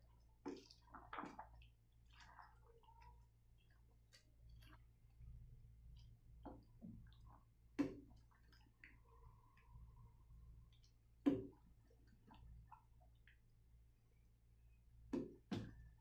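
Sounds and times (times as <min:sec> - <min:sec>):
spatula stirring thick stew: 0:00.0 - 0:10.4.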